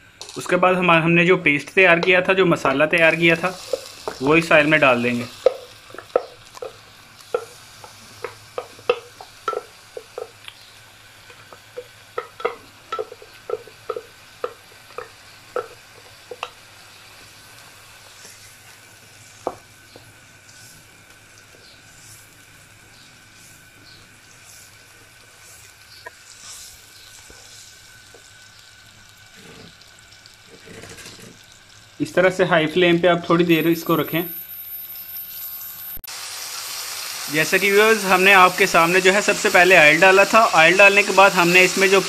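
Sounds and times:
paste sizzling in hot oil: 0.0s - 42.0s
spatula tapping glass bowl: 11.8s - 15.7s.

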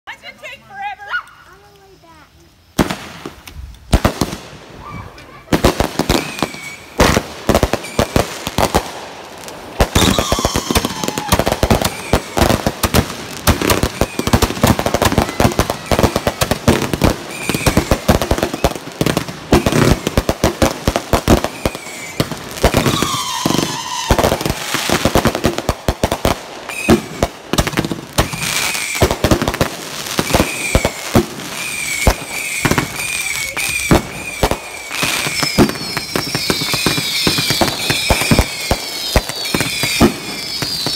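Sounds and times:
fireworks bangs and crackles: 1.5s - 40.9s
falling high-pitched whistles: 6.1s - 7.0s, 9.9s - 12.4s, 17.3s - 18.8s, 22.8s - 24.2s, 31.6s - 40.9s.

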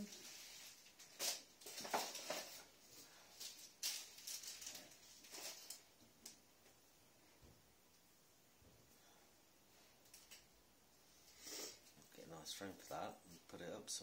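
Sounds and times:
rustling and scraping handling: 0.0s - 6.4s.

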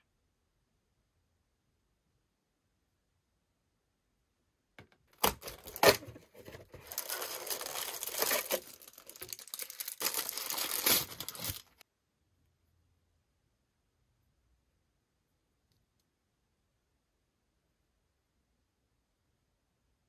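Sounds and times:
tissue paper crinkling: 5.2s - 11.8s.

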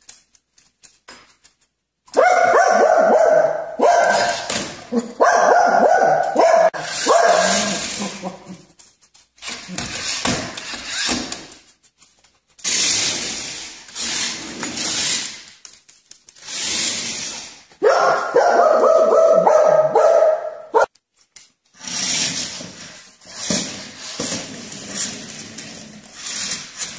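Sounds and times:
small dog barking: 2.1s - 4.4s, 5.2s - 7.8s, 17.8s - 20.9s.

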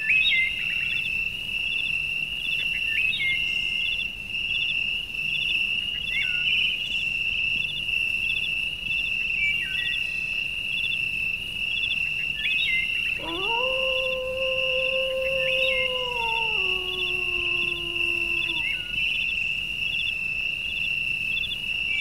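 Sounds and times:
high insect drone: 13.2s - 19.0s
long howl: 13.2s - 19.0s.

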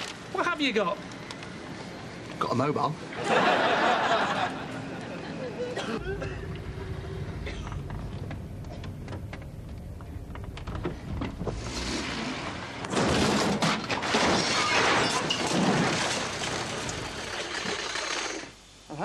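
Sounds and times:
car engine running: 6.0s - 11.6s
wooden frames crashing and splintering: 10.5s - 18.0s.

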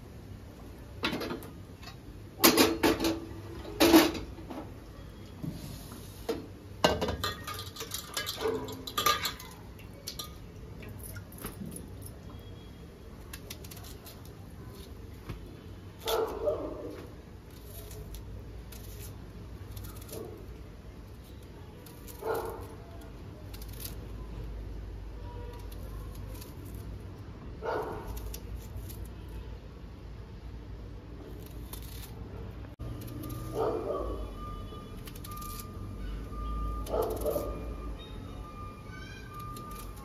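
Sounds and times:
metal utensils clattering: 7.0s - 9.6s.

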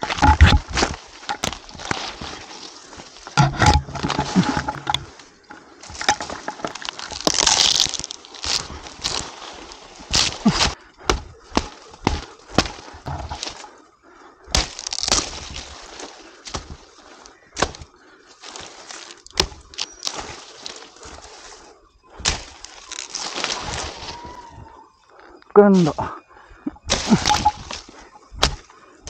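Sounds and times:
dry fronds cracking and tearing: 0.0s - 13.7s, 14.5s - 24.5s, 26.9s - 28.7s
machete chopping stalks: 3.3s - 5.1s, 10.1s - 13.6s, 14.5s - 15.6s, 17.6s - 17.9s, 19.3s - 20.2s, 22.2s - 23.4s, 26.9s - 28.7s.

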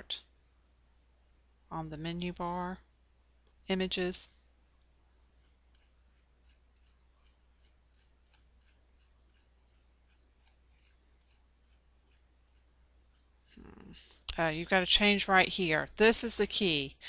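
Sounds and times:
steady low hum: 0.0s - 17.0s
small ticks: 5.3s - 13.6s.

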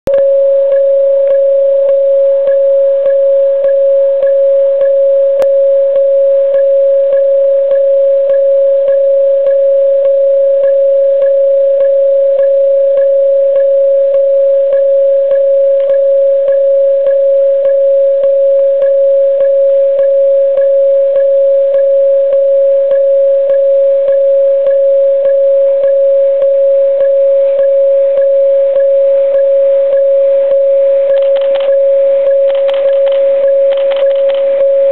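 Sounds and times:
level crossing alarm ringing: 24.7s - 34.9s.

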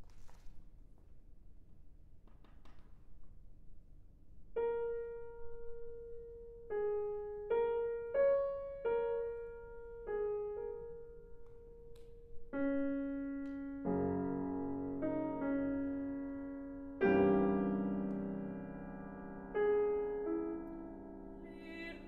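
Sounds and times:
slow piano melody: 4.5s - 22.0s.

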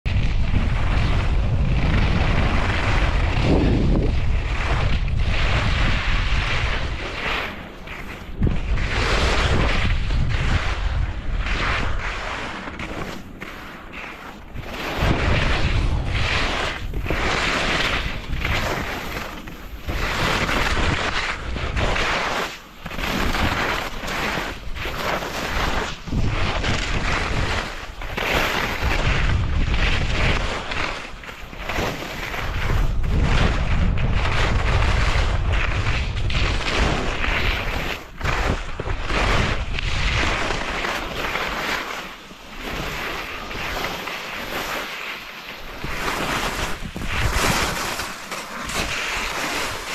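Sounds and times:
wind buffeting microphone: 0.0s - 7.2s, 8.2s - 12.2s, 14.5s - 22.0s, 25.6s - 28.1s, 28.7s - 30.5s, 32.3s - 40.6s, 45.8s - 48.0s
skis sliding on packed snow: 0.1s - 49.9s.

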